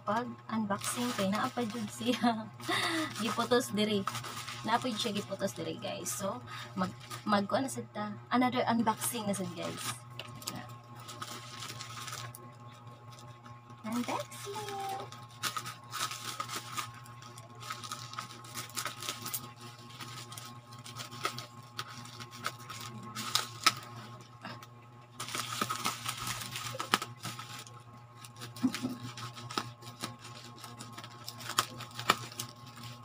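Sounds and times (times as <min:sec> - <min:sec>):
steady low hum: 0:00.0 - 0:33.0
plastic packaging crinkling: 0:00.6 - 0:07.4, 0:08.9 - 0:33.0.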